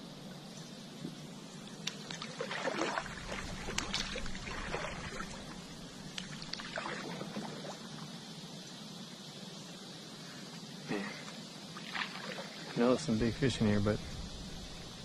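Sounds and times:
paddle splashing through water: 1.8 - 5.6, 6.2 - 7.8, 11.8 - 12.8.

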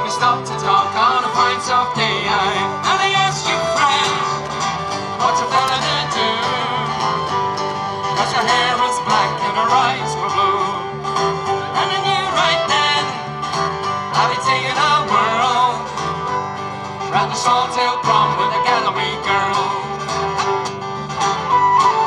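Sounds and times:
acoustic guitar folk music: 0.0 - 22.0.

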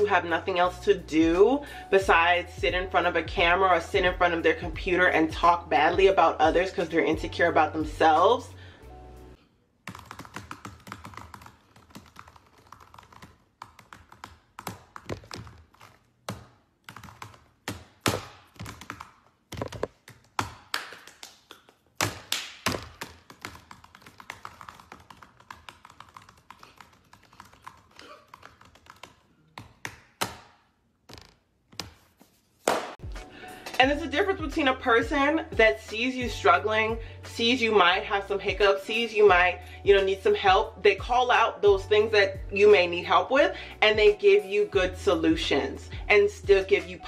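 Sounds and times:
typing on laptop keyboard: 9.8 - 20.7, 22.6 - 30.0.

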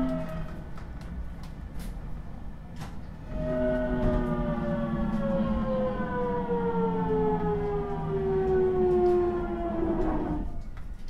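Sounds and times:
train motor whine: 0.0 - 1.1, 3.1 - 10.8
low train running rumble: 0.0 - 11.0.

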